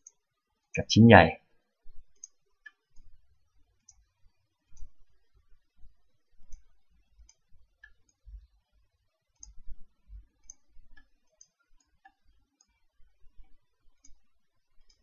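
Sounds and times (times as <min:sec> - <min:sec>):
computer mouse buttons clicking: 0:10.4 - 0:12.7.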